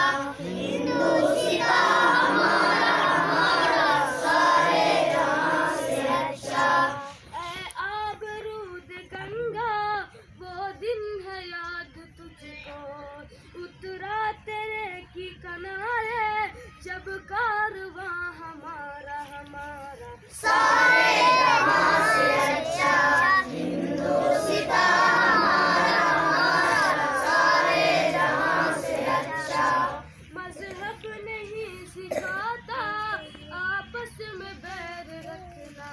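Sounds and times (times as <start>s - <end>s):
group of children singing: 0.0s - 7.5s, 20.3s - 30.8s
child singing: 0.0s - 8.4s, 20.3s - 33.0s.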